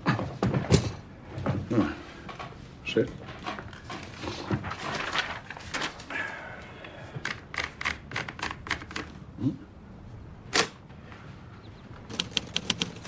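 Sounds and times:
typewriter clicks and clacks: 7.3 - 9.1, 12.1 - 13.0.

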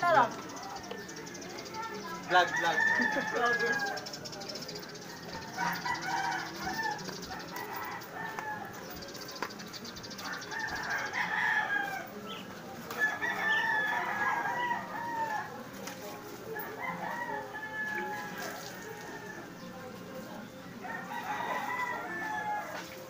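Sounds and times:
roosters crowing: 2.3 - 4.1, 5.0 - 9.0, 10.1 - 15.8, 16.5 - 19.7, 20.8 - 23.0.

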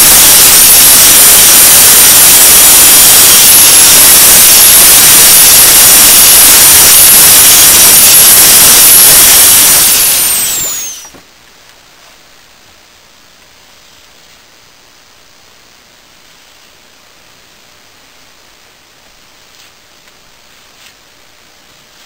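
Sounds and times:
power grinder grinding steel blade: 4.6 - 11.1.

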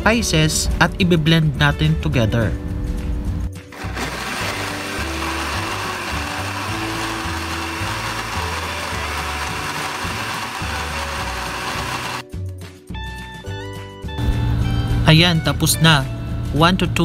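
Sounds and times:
blender running: 3.7 - 12.2.

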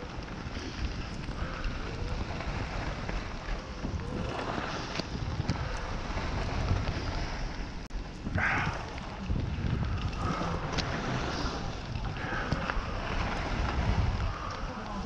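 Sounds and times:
wind buffeting microphone: 0.0 - 15.0
skis hissing over snow: 10.3 - 15.0.

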